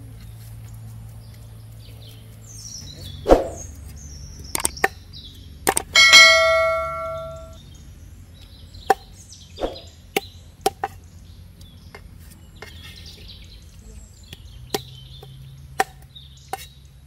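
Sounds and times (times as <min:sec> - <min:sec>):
faint birds chirping: 0:00.0 - 0:17.0
bell-like ding: 0:06.0 - 0:07.6
cleaver chopping fish on wood: 0:15.8 - 0:16.7.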